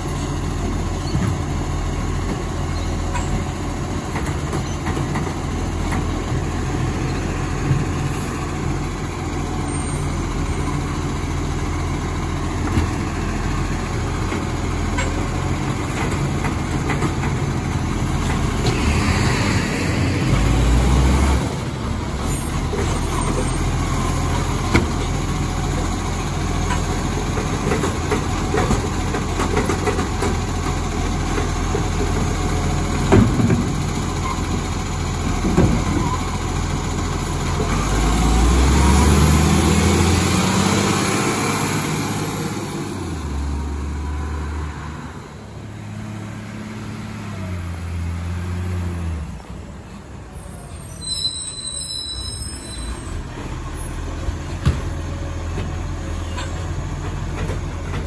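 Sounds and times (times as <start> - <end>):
garbage truck engine: 0.0 - 58.0.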